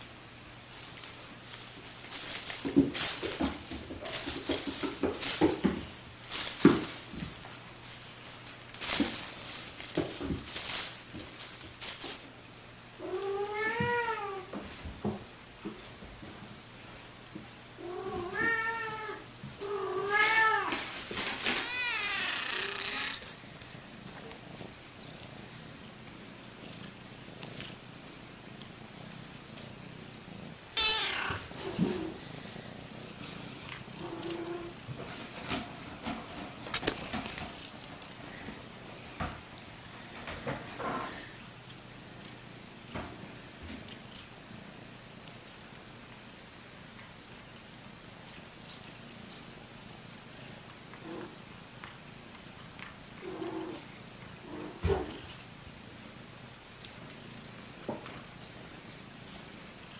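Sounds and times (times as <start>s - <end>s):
cat meowing: 21.5s - 23.2s, 30.8s - 31.5s
kitten meowing: 30.8s - 31.4s.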